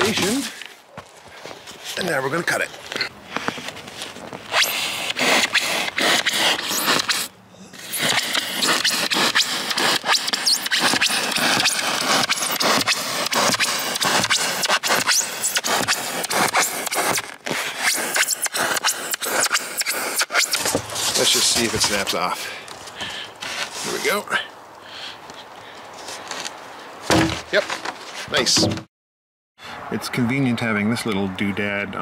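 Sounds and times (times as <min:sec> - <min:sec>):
knife sawing through foam: 0:04.5 - 0:22.1.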